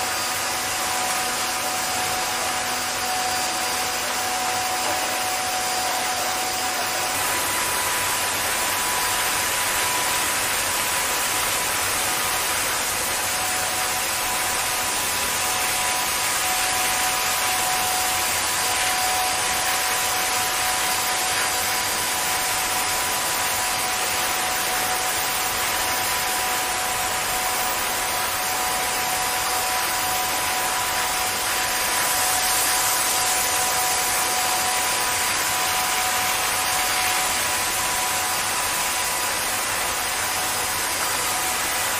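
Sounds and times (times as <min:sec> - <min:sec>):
car wash spraying water: 0:00.0 - 0:41.9
machine whine: 0:00.0 - 0:41.9.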